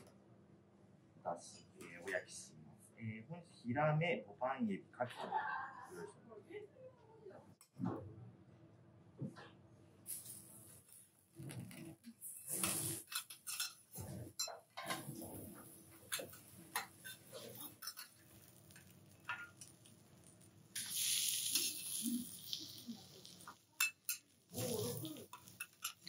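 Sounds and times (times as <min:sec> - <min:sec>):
metal spatulas scraping griddle: 0:12.2 - 0:18.6
seafood sizzling on hot plate: 0:14.9 - 0:26.0.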